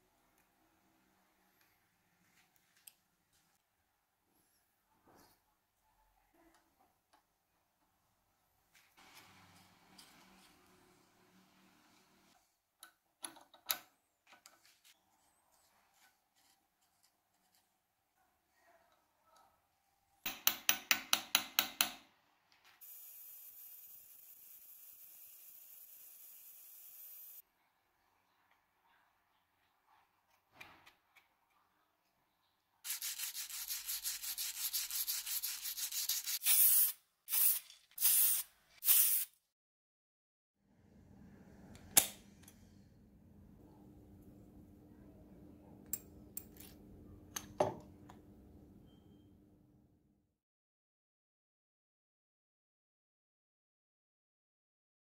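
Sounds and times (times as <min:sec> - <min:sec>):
sandpaper rubbing on metal: 0:32.9 - 0:38.4.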